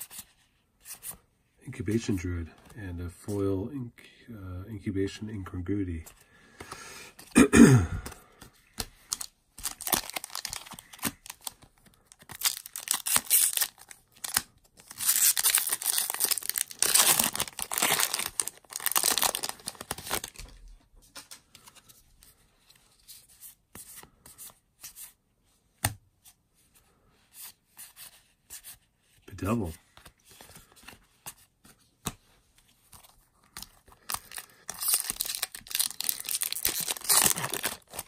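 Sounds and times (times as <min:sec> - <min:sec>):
cards rustling: 0:08.0 - 0:25.0, 0:29.4 - 0:38.0
foil wrapper tearing and crinkling: 0:09.1 - 0:11.5, 0:12.2 - 0:20.4, 0:34.0 - 0:38.0.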